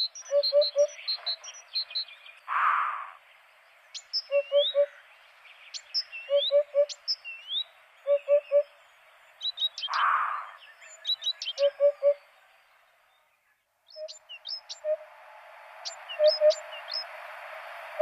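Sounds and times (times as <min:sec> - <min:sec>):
birds chirping: 0:00.0 - 0:18.0
hoopoe hooting: 0:08.1 - 0:08.7, 0:11.6 - 0:12.2
short rising whistles: 0:14.0 - 0:18.0.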